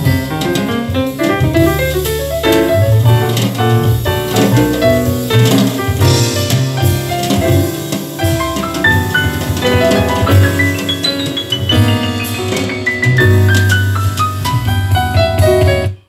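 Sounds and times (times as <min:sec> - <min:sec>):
instrumental piano music with drums: 0:00.0 - 0:16.0.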